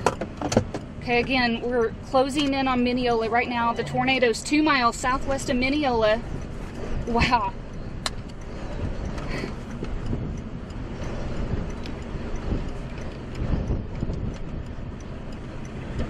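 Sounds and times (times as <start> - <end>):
wind buffeting microphone: 0.0 - 16.0
faint ticks: 3.4 - 16.0.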